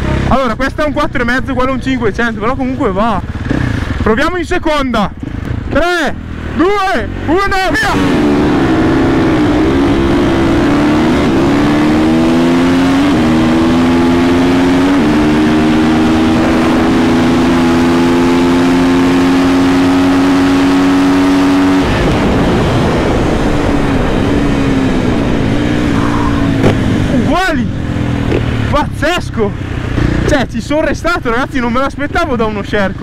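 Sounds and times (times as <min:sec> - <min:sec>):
motorcycle engine accelerating hard: 0:00.0 - 0:01.4, 0:02.0 - 0:04.4, 0:05.1 - 0:33.0
wind rush: 0:21.5 - 0:27.3.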